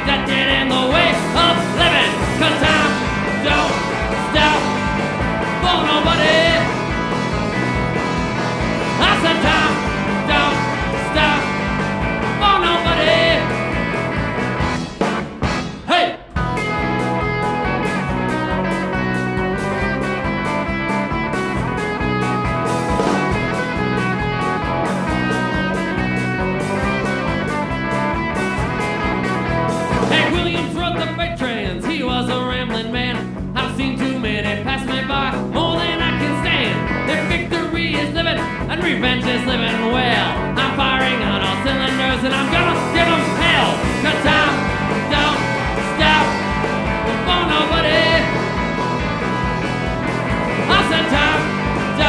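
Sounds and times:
person singing: 0.0s - 4.9s, 5.6s - 6.8s, 9.0s - 11.7s, 12.3s - 13.6s, 30.1s - 48.4s, 50.6s - 52.0s
electric guitar sliding notes: 0.0s - 30.9s, 39.9s - 52.0s
drum kit: 0.0s - 52.0s
electric bass: 0.0s - 52.0s
live rock band playing: 0.0s - 52.0s.

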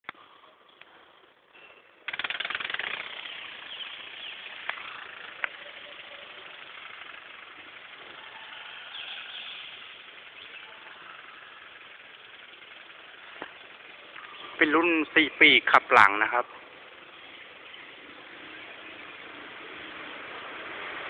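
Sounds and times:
model ornithopter fluttering buzz: 2.1s - 14.4s.

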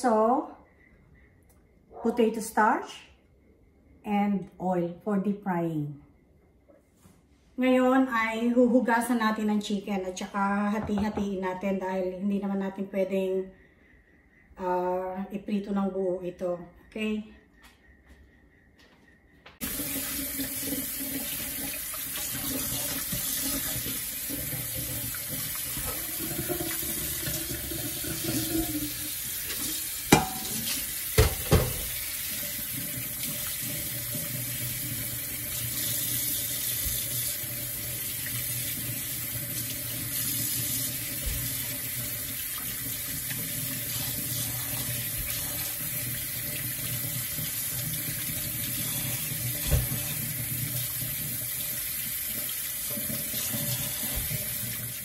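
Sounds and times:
tap water running into sink: 19.6s - 55.0s.

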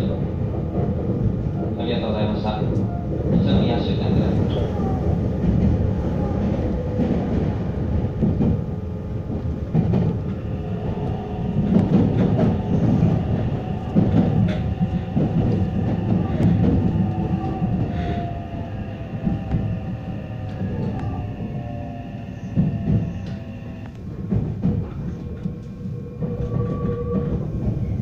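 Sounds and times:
wheel-on-rail rumble: 0.0s - 28.0s
train motor whine: 10.2s - 28.0s.

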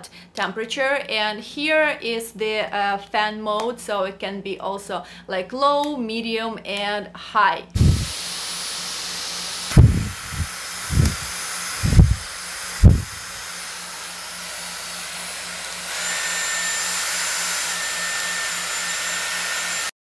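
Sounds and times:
high steady whine: 7.8s - 19.9s
hair styler fan air rush: 7.8s - 20.0s
low thumps: 9.7s - 12.2s, 12.8s - 13.2s.

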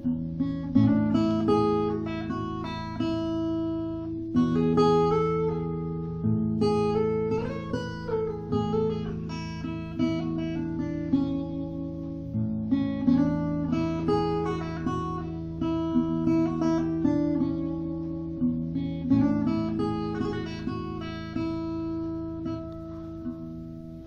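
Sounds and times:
acoustic guitar chords: 0.0s - 24.0s.

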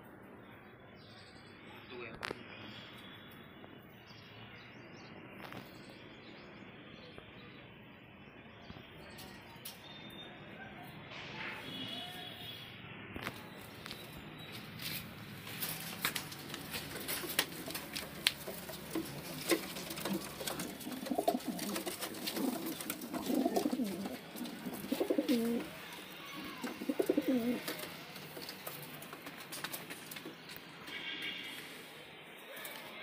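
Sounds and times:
pigeons cooing: 16.4s - 30.1s.

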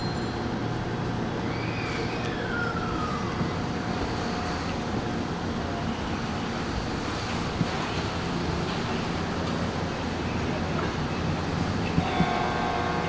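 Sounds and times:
steady hum tone: 0.0s - 13.0s
train running noise: 0.0s - 13.0s.

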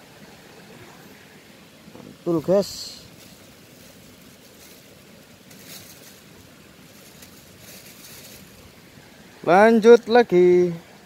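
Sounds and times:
outdoor background hiss: 0.0s - 11.0s
soft rustles: 3.1s - 8.8s.

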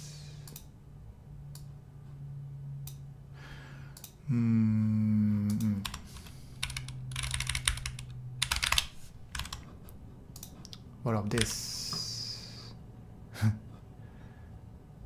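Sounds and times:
man humming: 4.2s - 6.0s
typing on computer keyboard: 5.8s - 9.7s, 11.3s - 11.6s.

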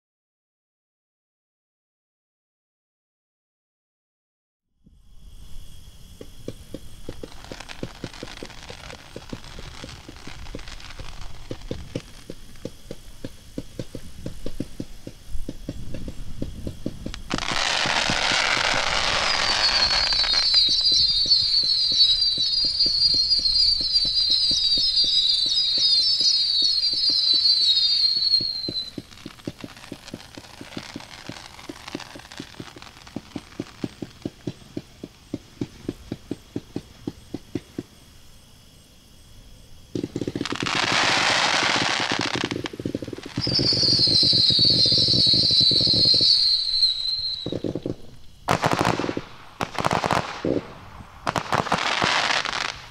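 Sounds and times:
firework whistles: 4.8s - 39.2s, 39.8s - 52.9s
firework thumps: 6.1s - 38.2s, 39.9s - 52.9s
firework shots: 6.4s - 38.0s, 39.9s - 52.9s
sharp firework bangs: 39.9s - 52.9s.

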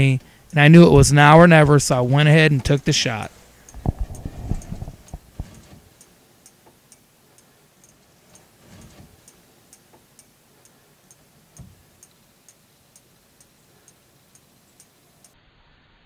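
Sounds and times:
faint high ticking: 0.0s - 15.4s
soft low thumps: 3.6s - 5.7s.

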